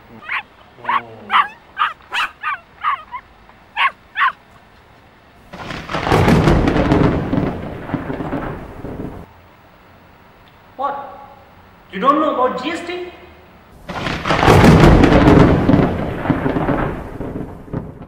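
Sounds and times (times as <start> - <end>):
short high yelping calls: 0.1 - 4.4.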